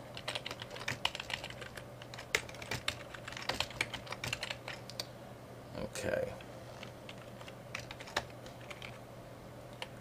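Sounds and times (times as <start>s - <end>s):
typing on computer keyboard: 0.2s - 5.1s, 6.8s - 9.0s.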